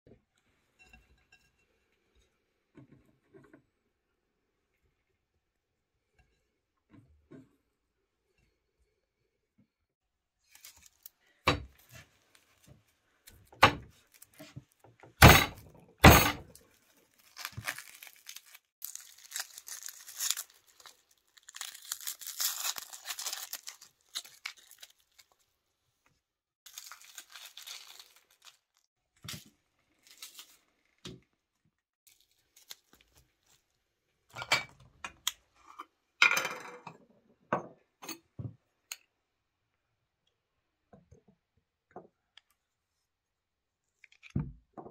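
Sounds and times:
onion skin crackling and tearing: 10.4s - 11.3s, 16.6s - 25.5s, 26.6s - 30.7s, 32.1s - 33.7s.

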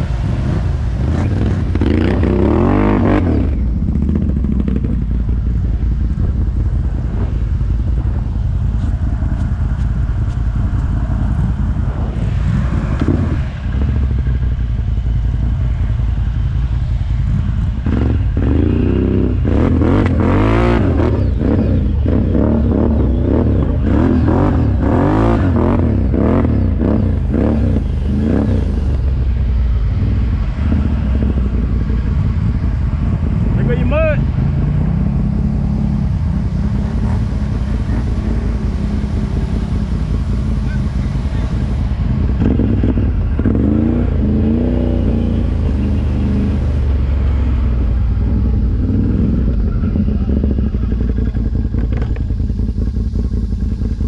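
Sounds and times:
atv engine revving: 0.0s - 54.0s.

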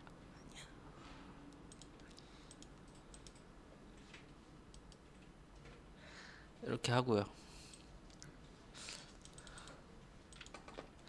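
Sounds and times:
keyboard and mouse clicks: 1.5s - 5.8s, 9.1s - 11.0s.

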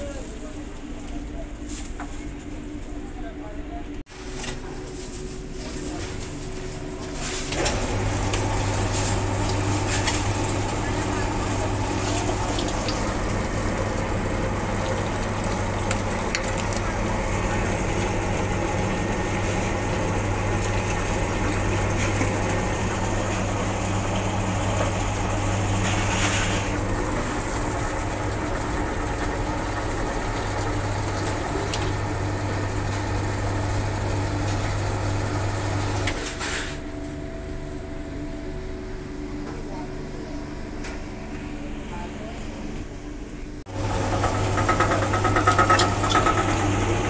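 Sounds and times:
meat grinder motor humming: 7.7s - 36.1s, 43.7s - 47.0s.

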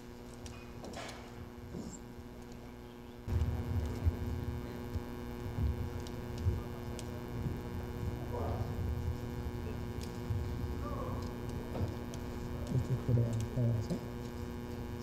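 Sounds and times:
electrical mains hum: 0.0s - 15.0s
sound system rumble: 3.3s - 14.2s.

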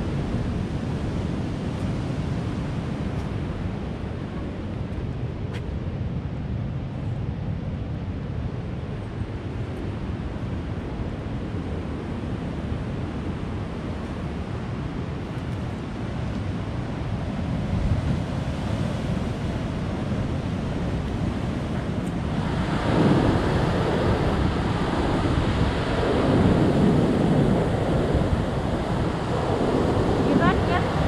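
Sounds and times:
wind buffeting microphone: 7.3s - 31.0s
sea surf washing in: 9.4s - 31.0s.

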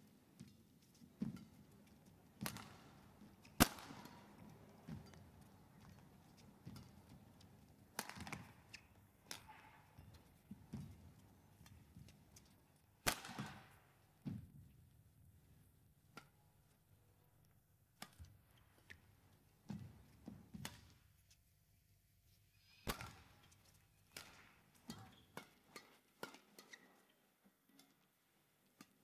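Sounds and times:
racket hitting shuttlecock: 2.4s - 10.9s, 11.6s - 13.9s, 18.0s - 19.1s, 22.8s - 27.0s
court shoes squeaking: 24.8s - 27.2s.

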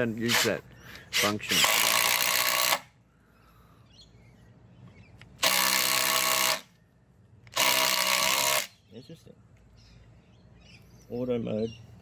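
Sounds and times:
impact driver running: 1.5s - 2.9s, 5.4s - 6.7s, 7.5s - 8.7s.

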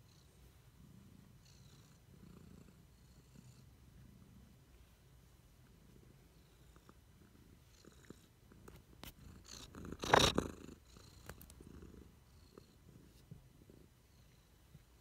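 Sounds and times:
cat purring softly: 0.0s - 15.0s
cat rubbing against microphone: 8.6s - 10.6s.

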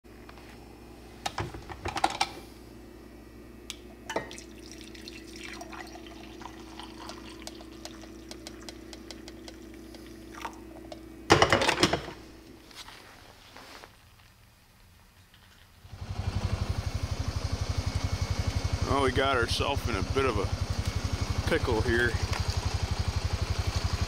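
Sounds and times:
mug and carafe clinking: 4.0s - 10.6s
coffee pouring into a mug: 4.1s - 10.9s
low hum: 15.8s - 24.0s.

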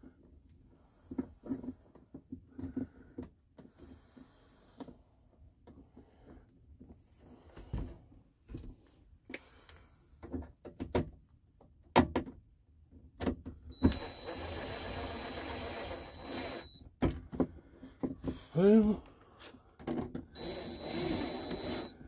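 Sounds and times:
cordless drill motor whine: 13.7s - 16.8s, 20.4s - 22.0s.

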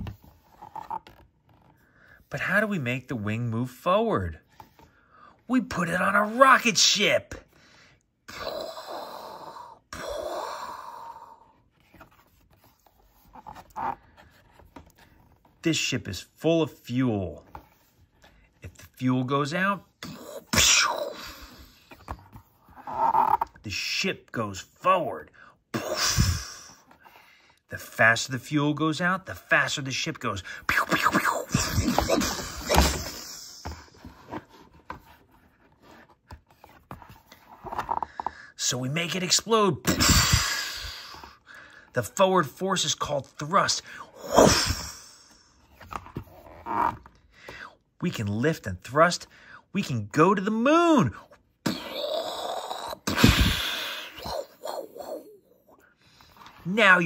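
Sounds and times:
book page turning: 0.0s - 1.9s, 11.6s - 15.7s, 31.1s - 38.3s
man's breathy mouth noises: 51.7s - 56.4s.

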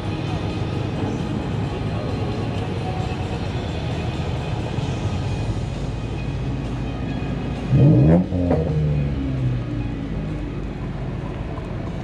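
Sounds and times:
car engine revving: 7.6s - 9.6s.

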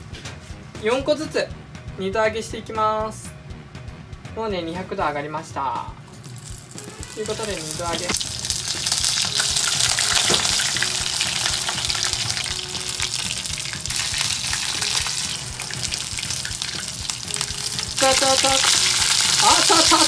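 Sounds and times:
chicken frying in oil: 6.2s - 20.0s.

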